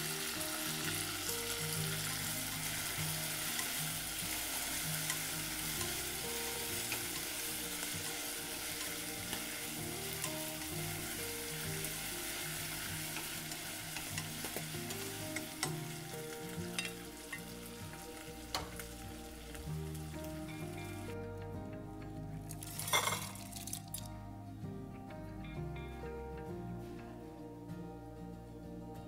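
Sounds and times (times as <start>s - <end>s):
meat sizzling in hot oil: 0.0s - 21.2s.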